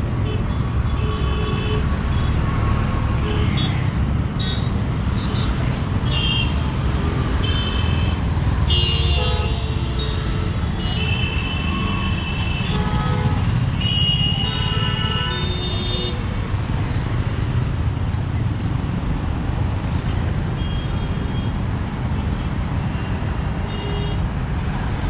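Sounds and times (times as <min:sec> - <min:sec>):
heavy road traffic: 0:00.0 - 0:25.0
vehicle horns honking: 0:07.4 - 0:16.2.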